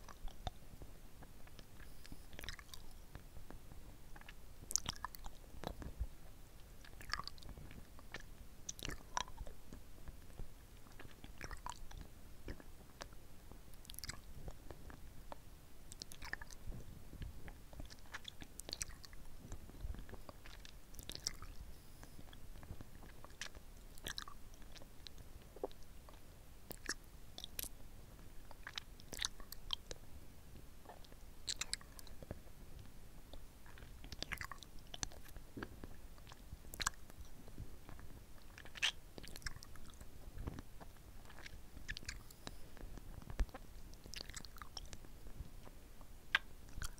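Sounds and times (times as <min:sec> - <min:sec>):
sucking and licking lollipop: 0:00.0 - 0:00.6, 0:01.4 - 0:27.8, 0:28.4 - 0:30.0, 0:30.8 - 0:46.9
lip and tongue smacks: 0:01.5 - 0:03.2, 0:04.2 - 0:05.9, 0:06.8 - 0:09.6, 0:10.8 - 0:13.2, 0:13.8 - 0:16.6, 0:17.7 - 0:27.7, 0:28.5 - 0:30.0, 0:30.9 - 0:32.4, 0:33.3 - 0:42.6, 0:43.2 - 0:45.7, 0:46.3 - 0:46.9.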